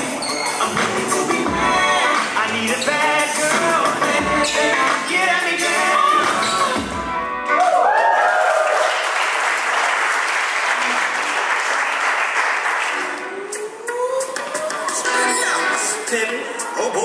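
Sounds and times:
dance music: 0.0 - 7.5, 12.8 - 17.0
crowd cheering and whooping: 7.5 - 9.4
crowd clapping and applauding: 7.6 - 13.3.

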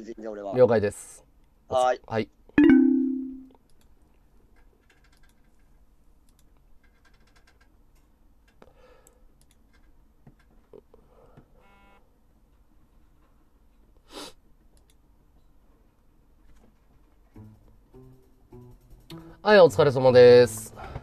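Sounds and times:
faint small clicks and taps: 3.6 - 11.0, 14.6 - 15.5.

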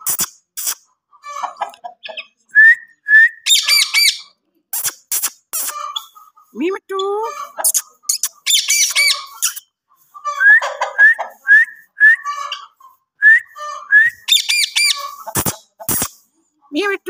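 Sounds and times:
harsh parakeet squawks: 3.5 - 6.1, 7.4 - 9.6, 13.5 - 16.1.

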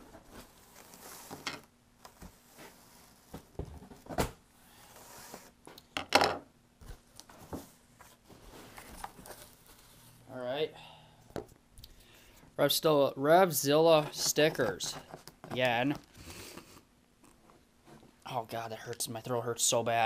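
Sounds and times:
cardboard packing rustling: 0.0 - 4.2, 6.8 - 10.2.

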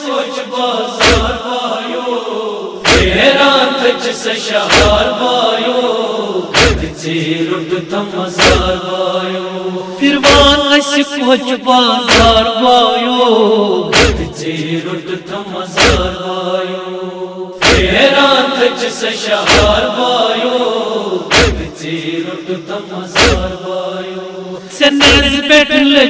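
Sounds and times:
men chanting in unison: 0.0 - 26.0
hands slapping chests: 6.6 - 6.9, 13.9 - 14.3, 21.3 - 21.7, 23.2 - 23.5.

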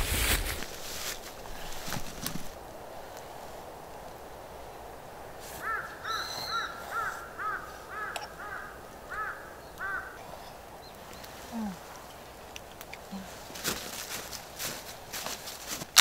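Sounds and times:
faint background hiss: 0.0 - 16.0
bird calling: 5.5 - 12.4.

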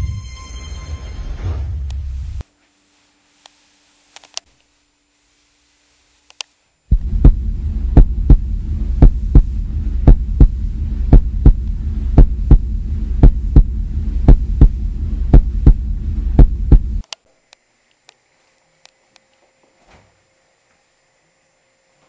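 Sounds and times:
heartbeat thumps: 6.9 - 17.0
low steady drone: 6.9 - 17.0.

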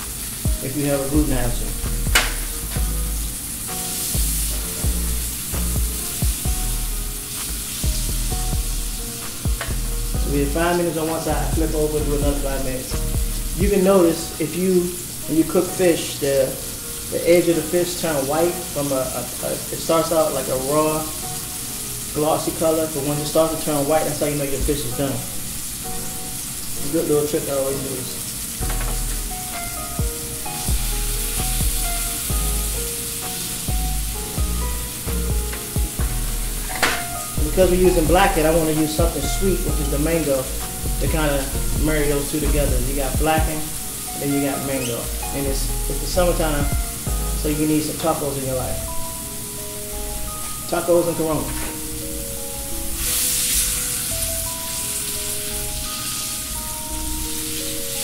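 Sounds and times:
music with deep bass hits: 0.0 - 10.7, 11.3 - 13.8, 28.6 - 33.0, 33.7 - 43.6, 45.1 - 47.6
fish sizzling in oil: 0.0 - 58.0.

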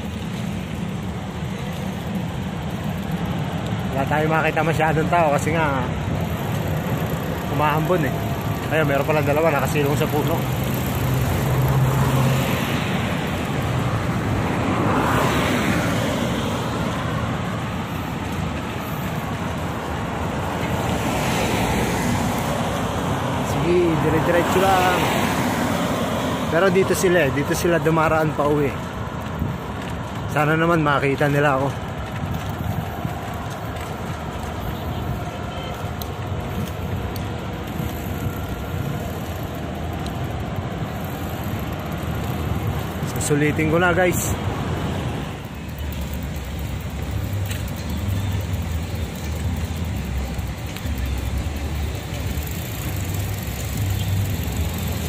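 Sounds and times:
bicycle rolling on wet street: 0.0 - 55.0
road traffic noise: 0.0 - 55.0
wind rushing over microphone: 4.5 - 47.4.

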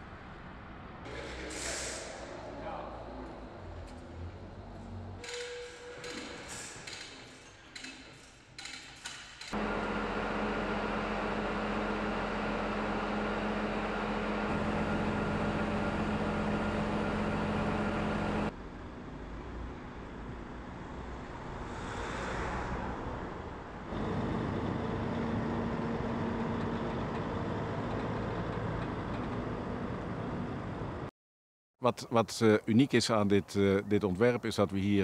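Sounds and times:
heavy truck engines humming: 9.6 - 31.1
vehicle passing: 20.8 - 26.5.

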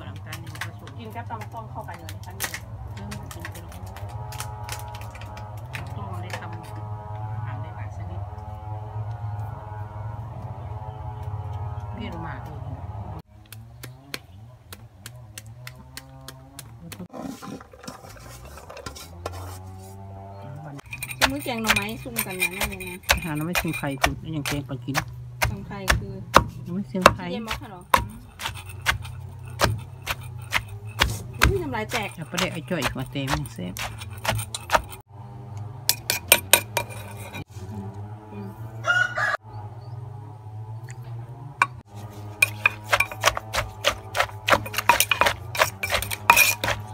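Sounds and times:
pestle knocking in mortar: 20.8 - 35.0, 42.4 - 46.9.

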